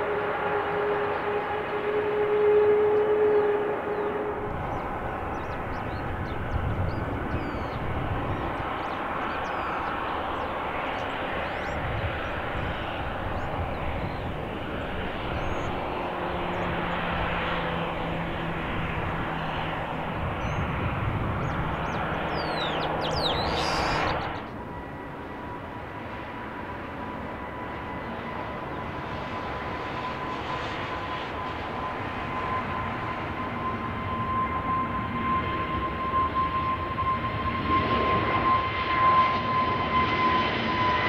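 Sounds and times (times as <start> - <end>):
jet engines running: 0.0 - 41.0.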